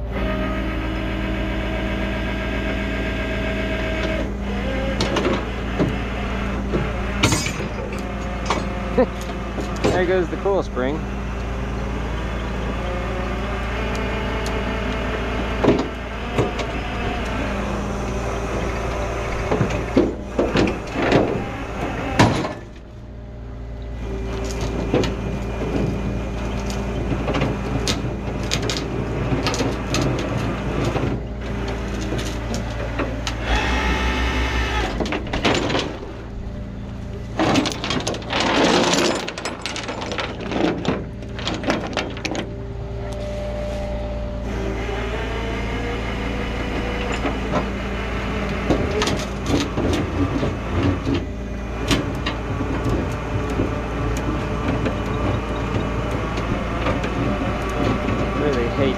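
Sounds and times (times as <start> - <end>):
truck engine running: 0.0 - 58.9
metal clanks and scraping: 6.6 - 11.0, 15.1 - 23.0, 24.0 - 34.0, 34.6 - 44.0, 46.2 - 58.9.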